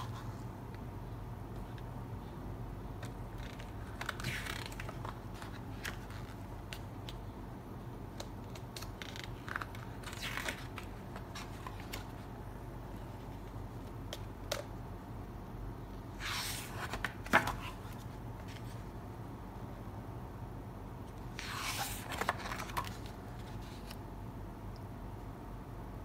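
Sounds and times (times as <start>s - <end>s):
book pages turning: 2.9s - 7.4s, 8.1s - 14.7s, 16.1s - 19.0s, 21.2s - 24.0s.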